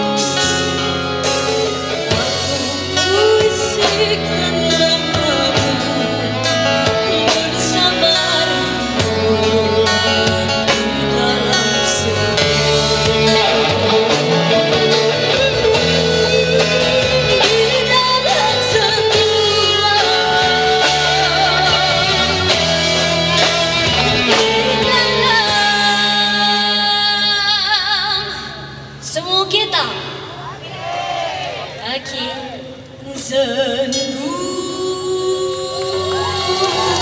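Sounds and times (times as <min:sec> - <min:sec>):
live rock band playing: 0:00.0 - 0:30.4, 0:32.9 - 0:37.0
girl singing into a microphone: 0:02.1 - 0:14.2, 0:16.0 - 0:22.5, 0:24.3 - 0:29.7, 0:31.8 - 0:37.0.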